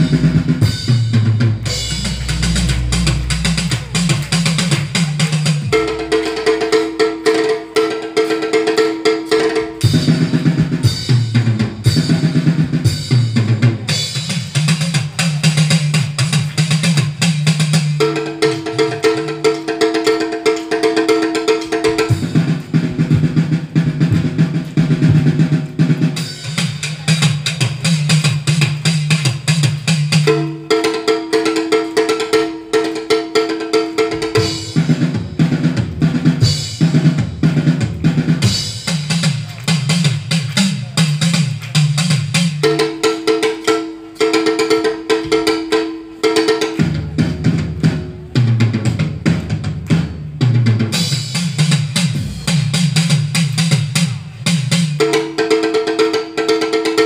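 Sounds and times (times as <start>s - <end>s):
bass line: 0.0s - 6.8s
drum kit beat: 0.0s - 57.0s.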